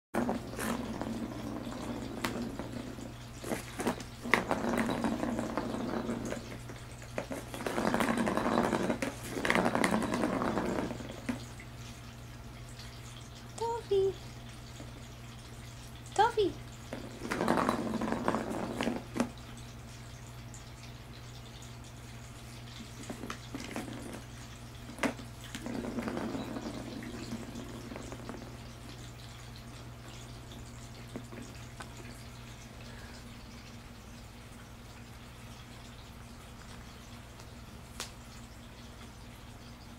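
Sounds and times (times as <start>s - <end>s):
ball rolling on plastic track: 0.2s - 11.6s, 16.3s - 19.4s, 22.8s - 29.1s, 30.5s - 32.1s.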